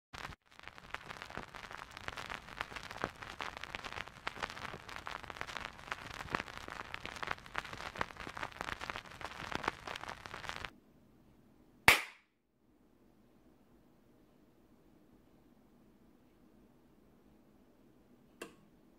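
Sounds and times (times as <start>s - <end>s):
vinyl record crackle: 0.1s - 10.7s
sharp hand clap: 11.9s - 12.3s.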